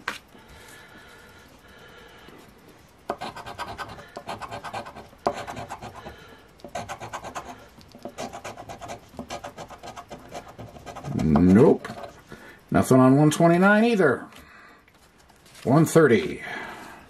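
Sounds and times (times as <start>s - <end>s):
coin scratching lottery ticket: 3.1s - 6.1s, 6.7s - 12.2s.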